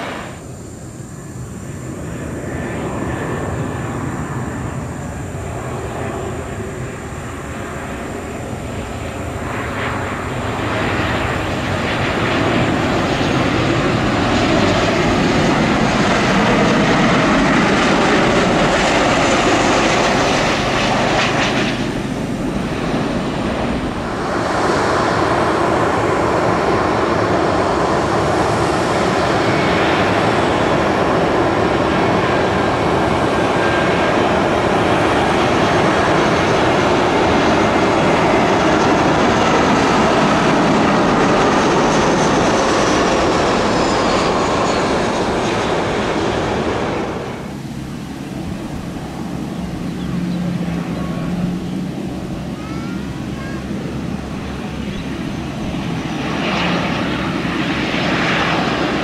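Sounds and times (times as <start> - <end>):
jet airliner engines: 0.0 - 59.0.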